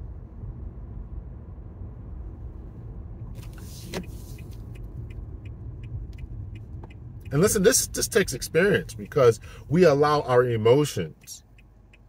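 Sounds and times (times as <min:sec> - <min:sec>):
car driving rumble: 0:00.0 - 0:12.0
light ticks: 0:03.4 - 0:12.0.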